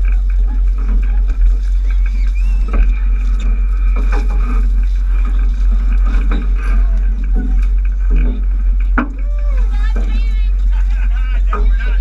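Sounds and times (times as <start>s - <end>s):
boat engine rumble: 0.0s - 12.0s
faint passenger voices: 6.0s - 12.0s.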